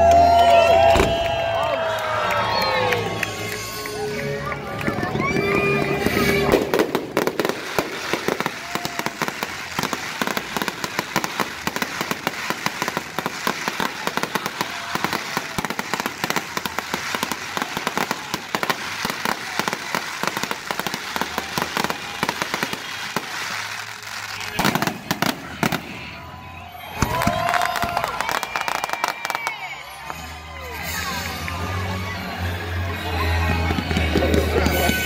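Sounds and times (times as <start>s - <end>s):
fireworks cracking and popping: 4.8s - 26.2s, 26.8s - 30.3s, 33.5s - 35.0s.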